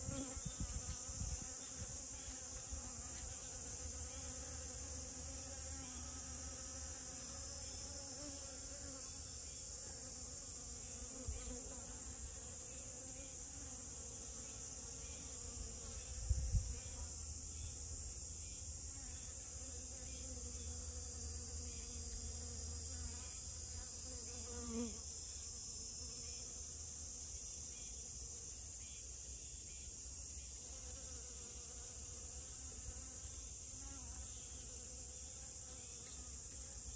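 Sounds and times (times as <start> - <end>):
honeybee buzzing in flight: 0.0 - 17.8, 18.8 - 25.2
steady high-pitched hiss: 0.0 - 36.9.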